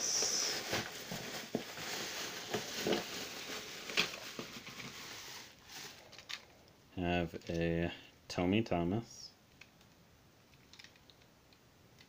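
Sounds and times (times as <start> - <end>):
bubble wrap crinkling: 0.0 - 6.7.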